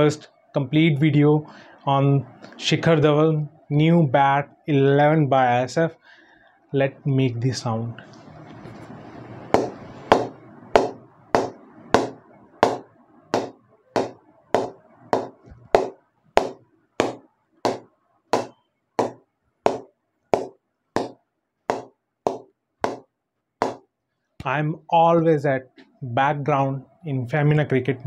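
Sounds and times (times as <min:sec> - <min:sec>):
ball knocking on cricket bat: 0:09.6 - 0:23.0, 0:23.6 - 0:23.8.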